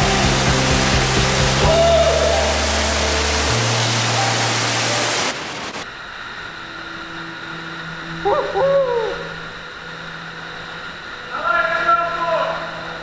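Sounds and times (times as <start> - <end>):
background music: 0.0 - 5.5
water rushing down a drain: 0.0 - 5.8
wavering voice-like sound: 8.2 - 9.6.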